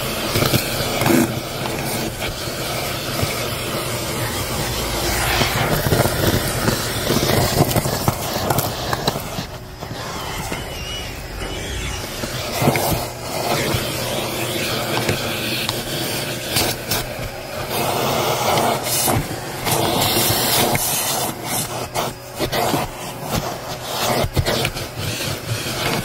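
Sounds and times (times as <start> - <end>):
vacuum cleaner motor: 0.0 - 26.0.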